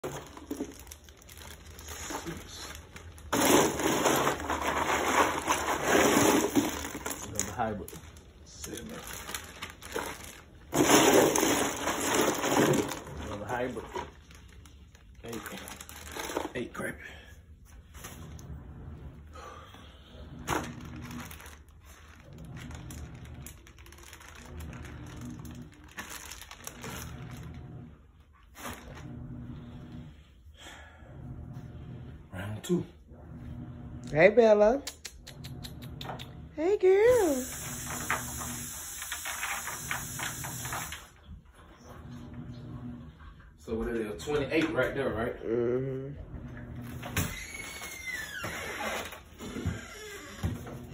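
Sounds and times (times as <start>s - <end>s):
plastic bag crinkling: 0.0s - 16.9s, 20.4s - 27.7s.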